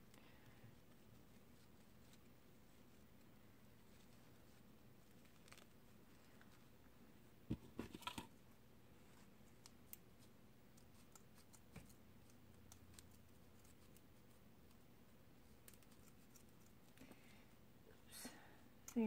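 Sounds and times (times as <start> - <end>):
ribbon rustling: 0.0 - 6.9.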